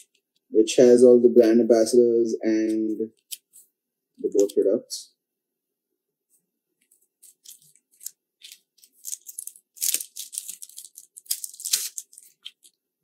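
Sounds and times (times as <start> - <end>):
plastic packaging crinkling: 6.8 - 12.8.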